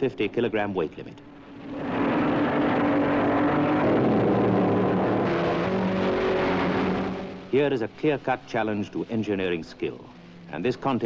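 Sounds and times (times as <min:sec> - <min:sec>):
racing car engines passing: 0:01.2 - 0:08.4.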